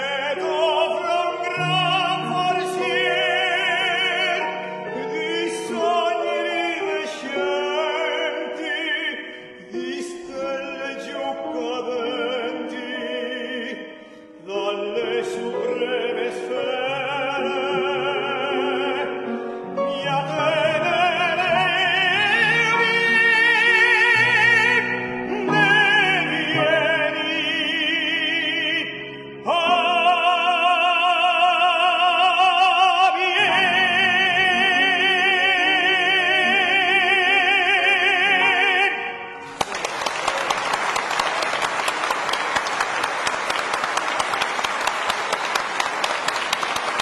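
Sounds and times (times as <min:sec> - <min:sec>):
classical singer: 0:00.0 - 0:47.0
piano accompaniment: 0:00.0 - 0:47.0
audience applauding: 0:39.4 - 0:47.0.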